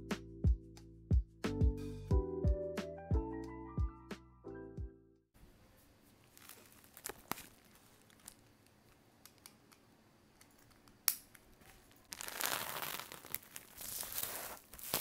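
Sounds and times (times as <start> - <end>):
plastic mailer crinkling: 6.3 - 8.4, 11.7 - 15.0.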